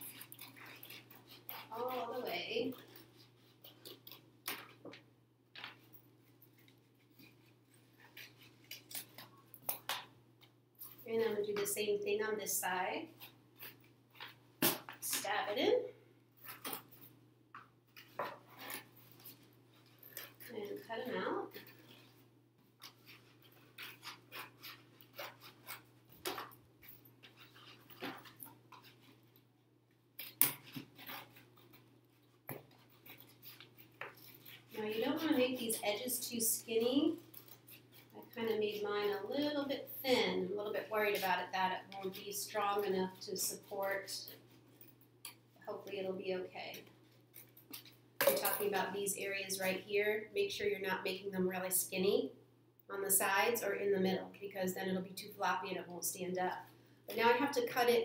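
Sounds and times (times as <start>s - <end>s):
scissors cutting cardboard: 22.9s - 26.5s.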